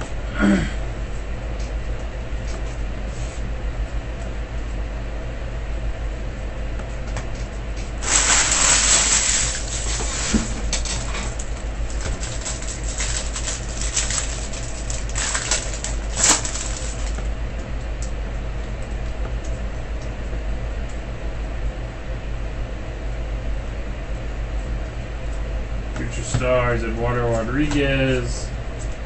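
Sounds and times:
steady low hum: 0.0s - 29.0s
card pack wrapper crinkling and tearing: 8.0s - 10.4s, 11.0s - 17.2s.

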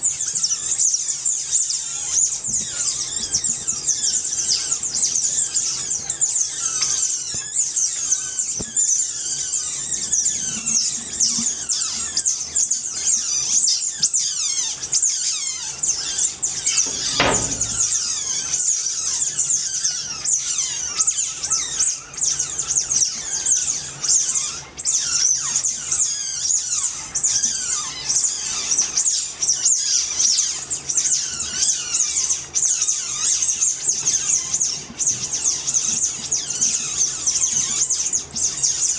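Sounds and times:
otters squealing: 0.4s - 18.5s.

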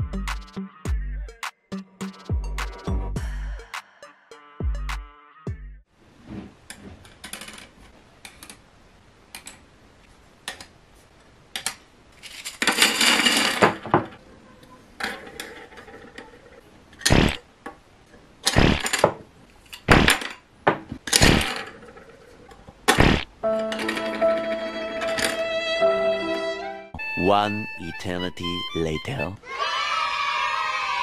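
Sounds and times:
plastic parts clattering: 7.0s - 8.6s, 11.6s - 14.2s, 15.0s - 17.1s.

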